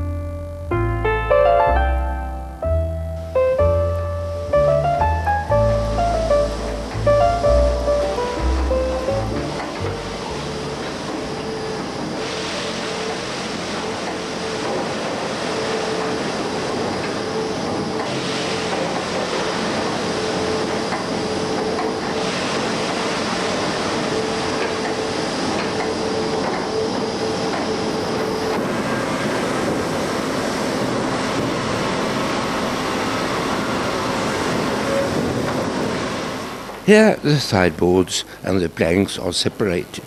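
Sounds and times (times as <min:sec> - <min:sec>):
conveyors running: 0:03.2 - 0:40.0
sawmill machinery running: 0:03.6 - 0:39.9.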